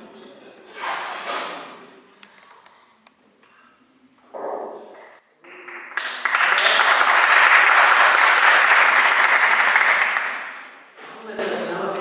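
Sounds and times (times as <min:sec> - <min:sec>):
audience applauding: 0:05.4 - 0:10.8.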